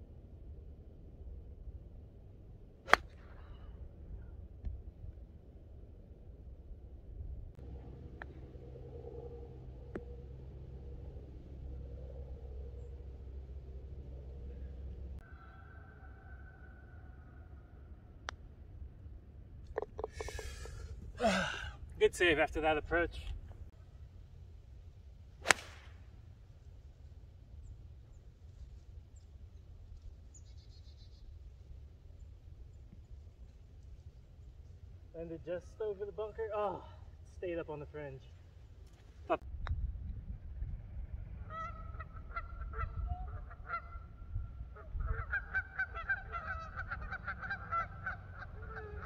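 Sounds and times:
low rumble: 0:00.0 - 0:15.3, 0:39.5 - 0:45.4
golf club striking ball: 0:25.4 - 0:26.0
geese honking: 0:41.5 - 0:49.0.

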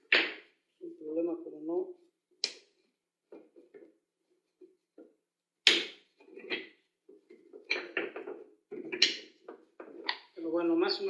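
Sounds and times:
wooden knocks: 0:05.7 - 0:10.2.

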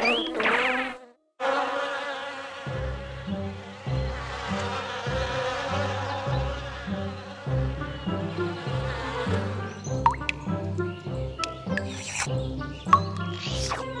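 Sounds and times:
bees buzzing: 0:00.0 - 0:14.0
music with bouncing bass line: 0:10.0 - 0:10.8.

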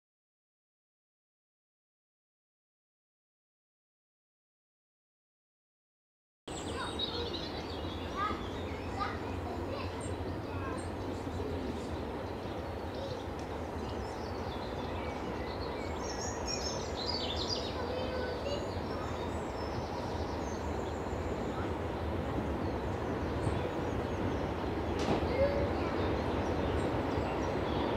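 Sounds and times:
birds singing and chirping: 0:06.5 - 0:27.9
distant diesel locomotive rumble: 0:06.5 - 0:27.9.

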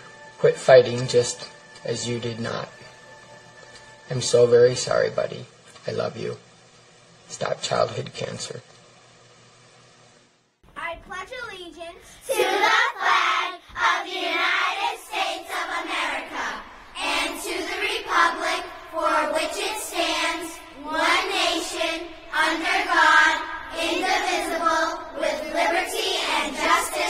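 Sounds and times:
children singing together: 0:12.3 - 0:27.0.

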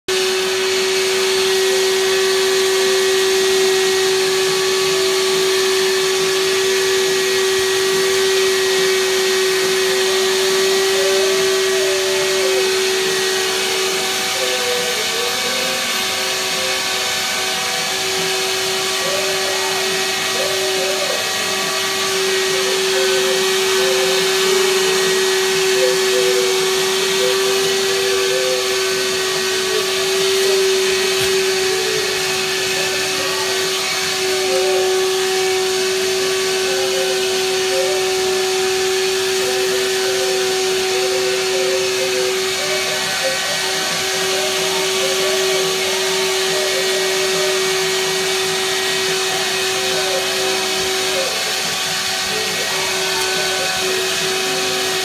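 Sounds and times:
vacuum cleaner humming: 0:00.0 - 0:55.0
wavering higher tone: 0:19.0 - 0:35.4, 0:39.4 - 0:47.6.

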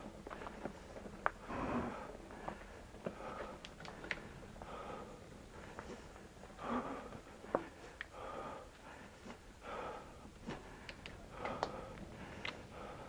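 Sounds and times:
person breathing hard: 0:00.0 - 0:13.0
bike clicks and rattles: 0:02.3 - 0:04.5.

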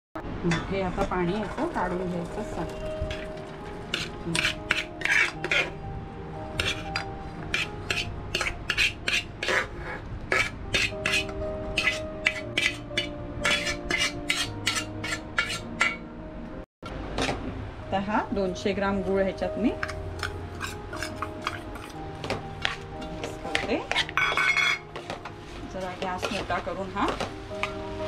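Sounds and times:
metal pot and spoon clinking: 0:06.6 - 0:09.7, 0:10.3 - 0:16.0, 0:19.8 - 0:25.3.

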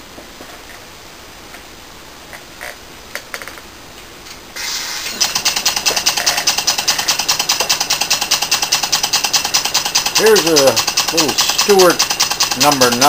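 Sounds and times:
compressed air hissing: 0:04.6 - 0:13.0
steam engine exhaust puffs: 0:04.6 - 0:13.0.

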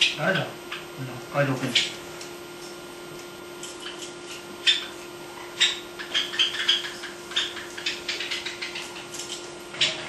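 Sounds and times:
faint hum: 0:00.0 - 0:10.0.

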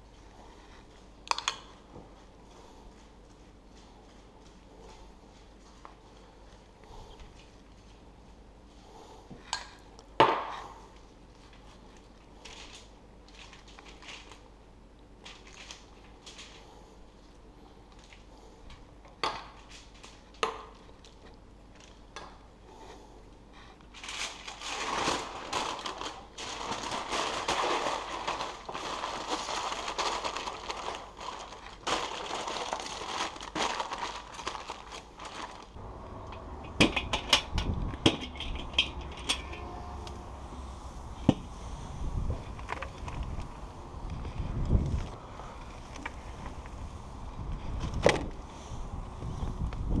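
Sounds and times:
aluminium foil crinkling: 0:11.0 - 0:14.6, 0:15.2 - 0:16.8, 0:19.6 - 0:22.1, 0:23.8 - 0:35.8
wind rumble on microphone: 0:36.1 - 0:50.0.

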